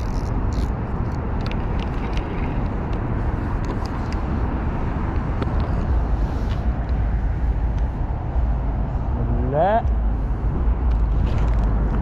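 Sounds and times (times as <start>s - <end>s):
road traffic rushing: 0.0s - 12.0s.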